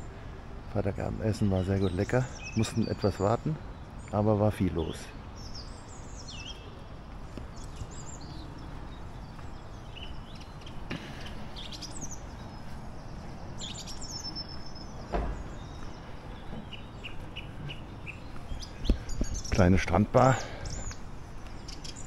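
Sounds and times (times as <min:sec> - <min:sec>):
outdoor background noise: 0:00.0 - 0:22.0
small birds chirping and whistling: 0:01.4 - 0:04.2, 0:04.9 - 0:22.0
heavy thump: 0:15.0 - 0:15.6
sharp knock: 0:15.1 - 0:15.5.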